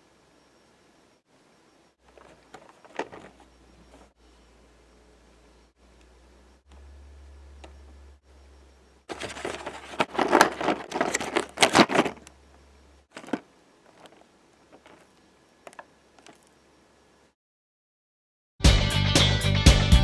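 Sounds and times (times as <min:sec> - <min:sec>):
cardboard crackling and tearing: 0:09.1 - 0:12.3, 0:13.1 - 0:14.2.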